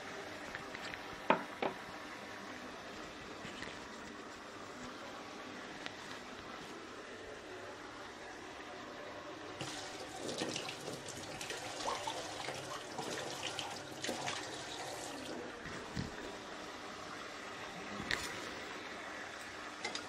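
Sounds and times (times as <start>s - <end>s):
tap water splashing into sink: 9.6s - 15.3s.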